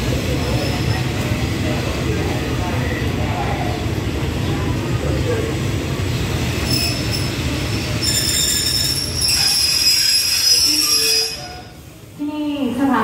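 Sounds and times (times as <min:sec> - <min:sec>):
low train rumble: 0:00.0 - 0:13.0
train wheels squealing: 0:00.3 - 0:01.1, 0:06.5 - 0:11.8.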